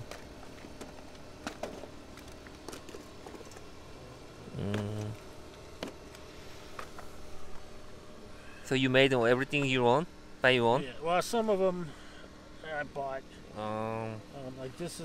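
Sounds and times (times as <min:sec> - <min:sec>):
man murmuring: 0:04.4 - 0:05.2, 0:13.5 - 0:14.3.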